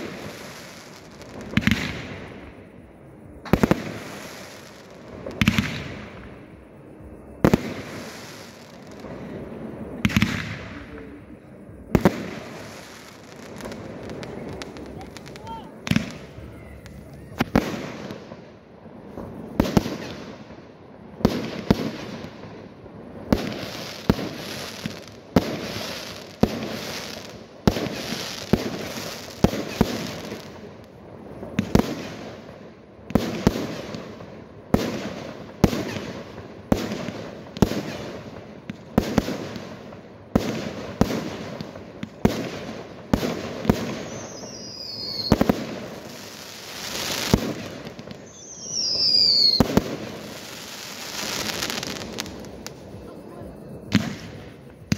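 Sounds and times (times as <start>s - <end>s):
high falling whistles: 44.0s - 45.5s, 48.1s - 52.8s.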